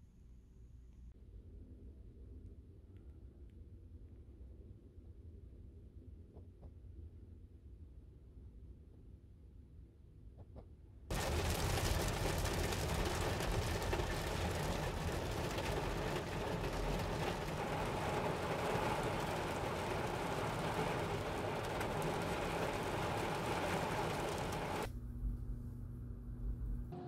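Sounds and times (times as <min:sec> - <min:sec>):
heavy rain on a car roof: 0:11.1 - 0:24.9.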